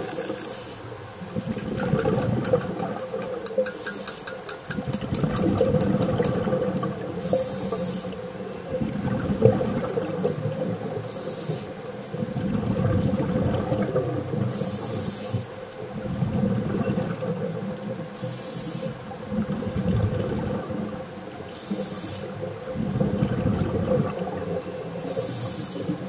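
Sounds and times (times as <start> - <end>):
faint steady hum: 0.0 - 26.0
short hiss: 3.8 - 4.4, 7.3 - 8.2, 14.6 - 15.5, 18.2 - 18.9, 21.5 - 22.3.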